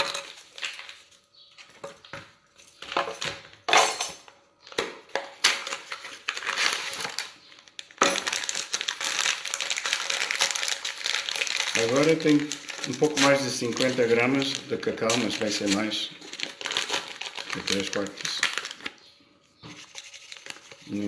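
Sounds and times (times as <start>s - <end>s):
plastic packaging crinkling: 0.0s - 1.5s, 5.4s - 19.1s, 19.8s - 21.0s.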